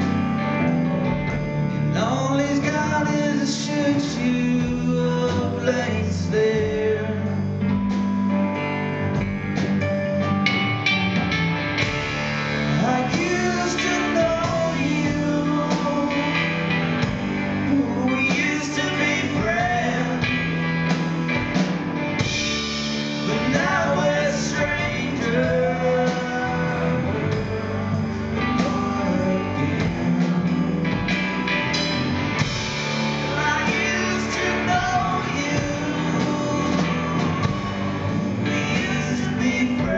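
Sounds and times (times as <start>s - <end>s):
drum kit: 0.0s - 39.9s
electric guitar: 0.0s - 39.9s
keyboard: 0.0s - 39.9s
man singing: 1.7s - 8.0s, 12.7s - 21.5s, 23.1s - 31.1s, 32.4s - 39.9s.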